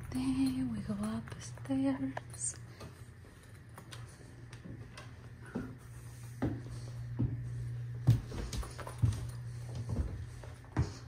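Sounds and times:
footsteps on wooden stairs: 4.3s - 11.0s.

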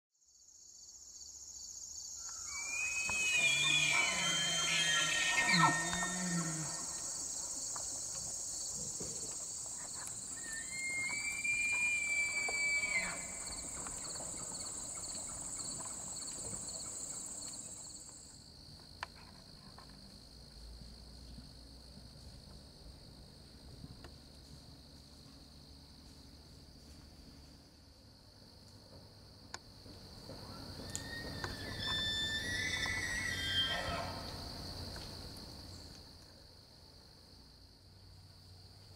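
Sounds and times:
crickets and insects chirping: 0.2s - 38.9s
elk bugling whistle: 2.4s - 6.9s, 10.4s - 13.4s.

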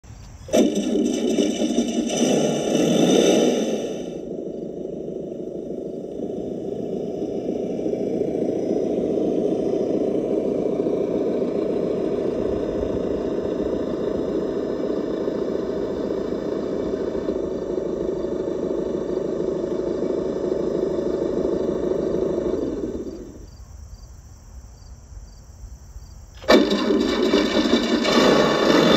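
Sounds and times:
simulated truck engine idling: 0.5s - 23.6s.

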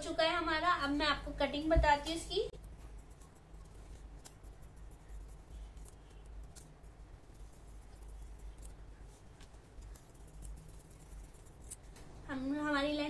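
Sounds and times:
low steady hum: 0.0s - 13.0s
scissors snipping fabric: 9.4s - 12.1s.

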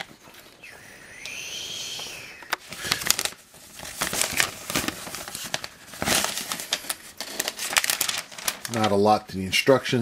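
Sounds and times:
paper crinkling and rustling: 2.5s - 9.2s.

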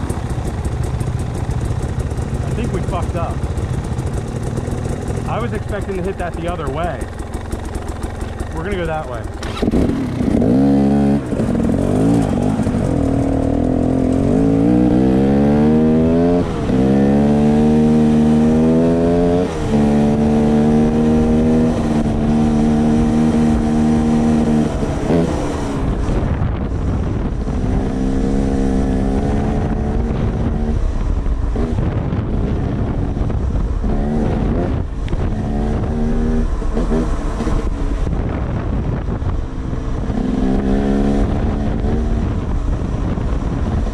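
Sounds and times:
motorcycle engine pulling hard: 0.0s - 43.9s.

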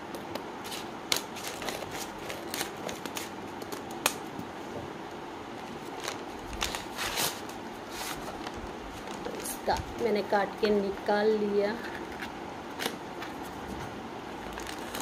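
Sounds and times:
scissors snipping paper: 0.6s - 4.2s
paper crinkling and rustling: 5.6s - 9.9s, 14.3s - 15.0s.

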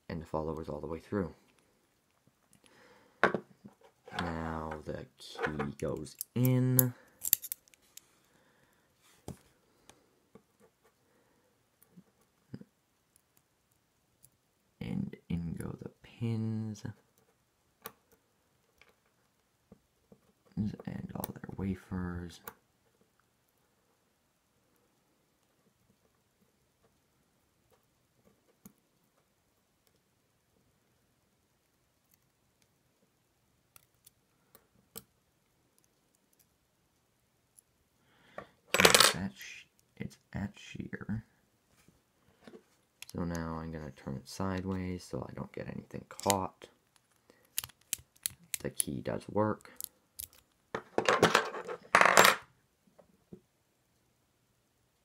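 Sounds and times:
small metallic clicks: 5.8s - 8.1s, 47.0s - 48.9s, 49.8s - 50.6s
small metallic clicks and taps: 47.0s - 48.7s.

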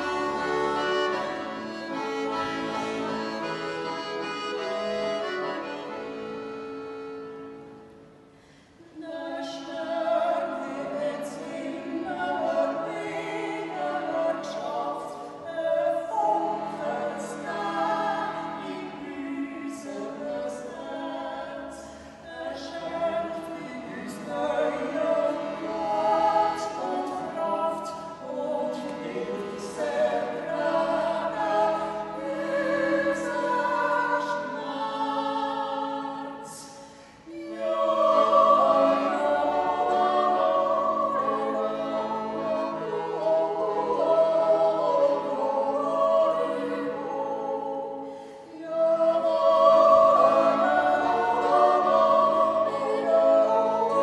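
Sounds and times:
piano accordion: 0.0s - 8.1s, 16.2s - 21.2s, 22.8s - 35.9s, 37.3s - 47.6s, 49.4s - 54.0s.

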